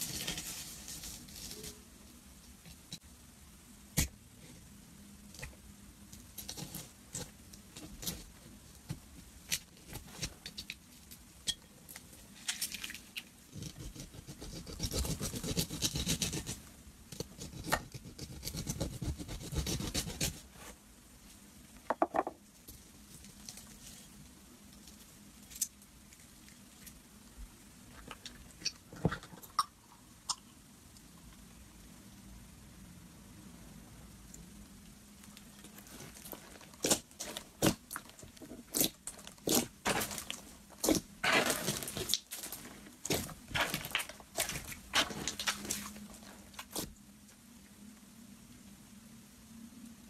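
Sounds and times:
knife crackling through slime: 0:13.5 - 0:16.6, 0:17.2 - 0:20.5, 0:38.7 - 0:42.3
slime squelch: 0:35.6 - 0:47.0.

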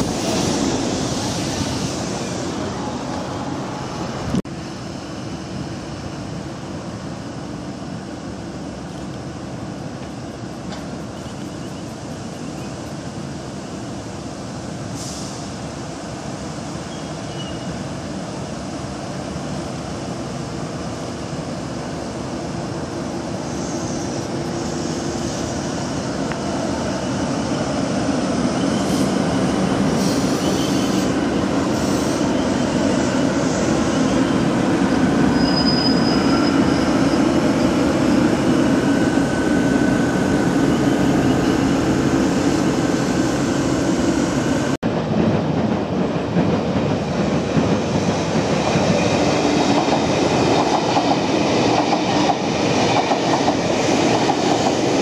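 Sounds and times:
high wheel squeals: 0:26.7 - 0:42.6.

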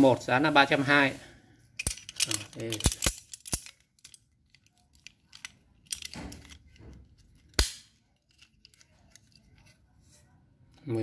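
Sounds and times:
metal wrenches clicking: 0:01.8 - 0:06.6.

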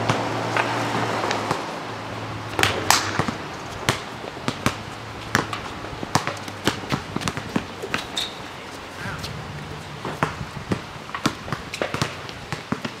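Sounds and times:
basketball bouncing on asphalt: 0:02.5 - 0:08.4, 0:09.0 - 0:13.0.

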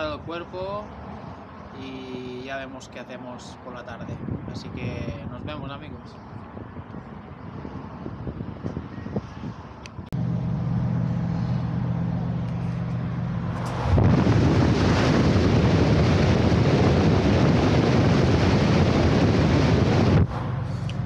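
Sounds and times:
road noise in tunnel: 0:00.0 - 0:21.0
vehicle engine humming: 0:06.3 - 0:21.0.

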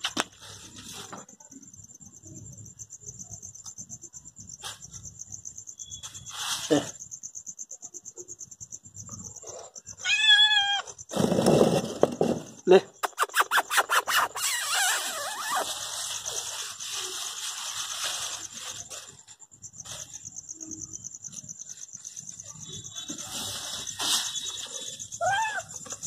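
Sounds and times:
cat crying: 0:10.0 - 0:11.0, 0:25.2 - 0:26.0.

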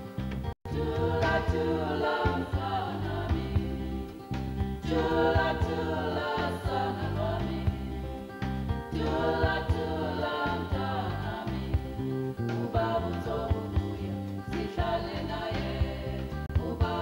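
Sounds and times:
instrumental backing with beat: 0:00.0 - 0:17.0
choir singing in harmony: 0:00.7 - 0:17.0.

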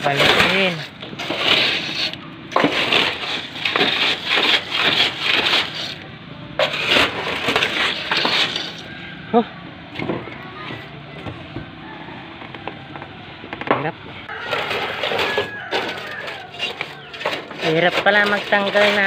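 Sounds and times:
broom scraping leaves in metal gutter: 0:00.0 - 0:06.0, 0:06.6 - 0:09.1, 0:14.3 - 0:19.0.

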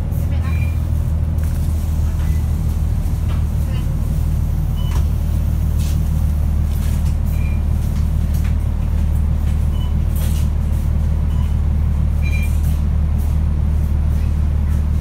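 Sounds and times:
bus diesel engine rumbling: 0:00.0 - 0:15.0.

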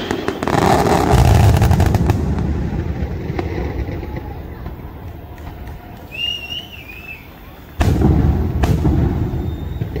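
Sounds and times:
firework bang: 0:00.0 - 0:04.9, 0:07.8 - 0:10.0
sharp firework crack: 0:00.0 - 0:06.6, 0:07.8 - 0:10.0
high warbling whistle: 0:09.2 - 0:10.0.

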